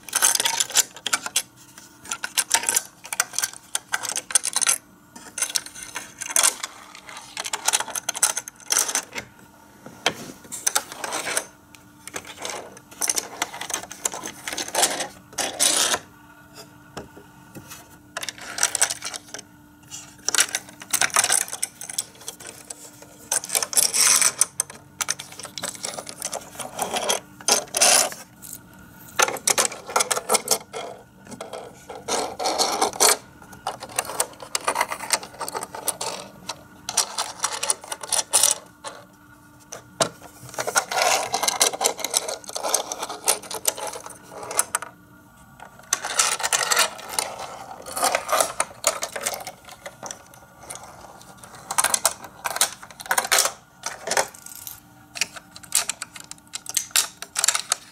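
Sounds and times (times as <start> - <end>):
toy car wheels rattling on plastic: 2.1 - 9.1, 12.1 - 16.0, 20.0 - 28.2, 29.2 - 39.0, 40.0 - 44.9, 45.9 - 57.9.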